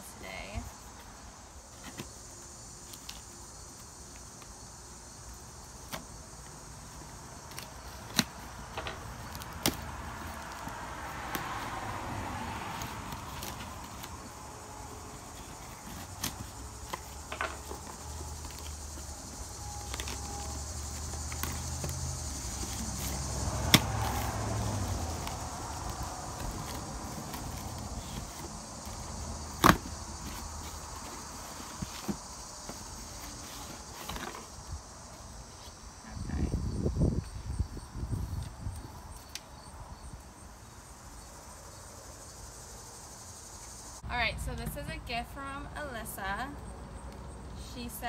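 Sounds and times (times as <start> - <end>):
insect chirring: 0.0 - 44.1
low vehicle rumble: 8.5 - 31.4.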